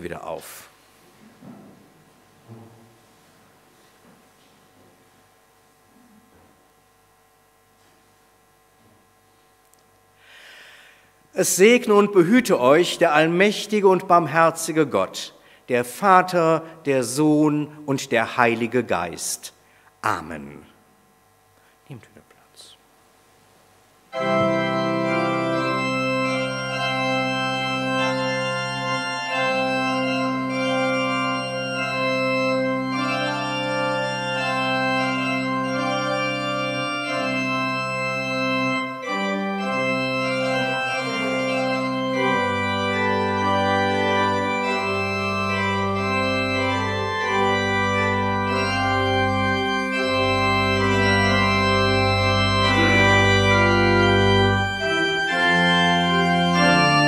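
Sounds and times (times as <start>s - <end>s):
church organ playing chords: 0.0s - 0.8s, 10.2s - 20.8s, 24.0s - 57.0s.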